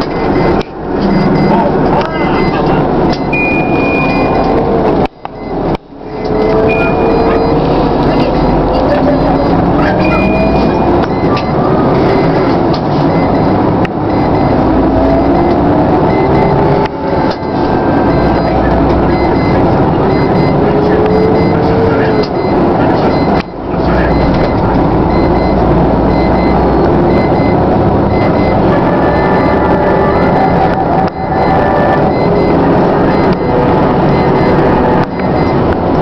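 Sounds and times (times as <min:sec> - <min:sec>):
road noise inside cabin: 0:00.0 - 0:36.0
vehicle engine accelerating: 0:00.0 - 0:36.0.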